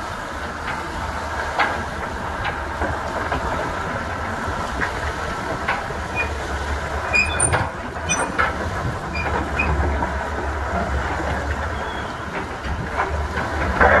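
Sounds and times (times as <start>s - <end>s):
excavator diesel engine idling: 0.1s - 14.0s
short high squeaks and clicks: 6.2s - 6.4s, 7.0s - 9.8s.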